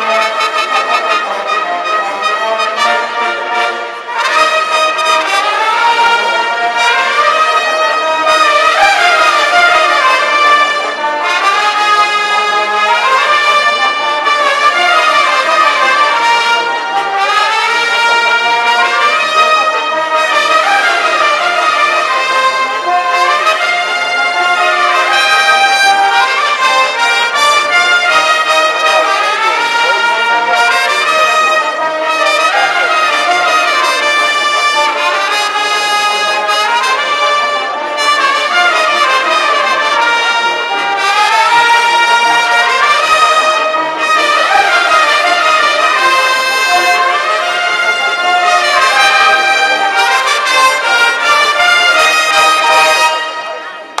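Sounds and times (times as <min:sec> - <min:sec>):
brass band playing: 0:00.0 - 0:54.0.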